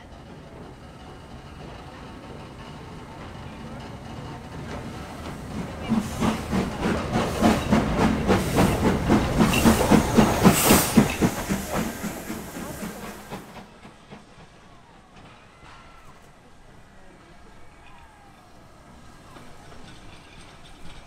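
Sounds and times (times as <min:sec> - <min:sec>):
steam locomotive chuffing: 0:00.0 - 0:21.0
steam hissing: 0:00.8 - 0:16.2.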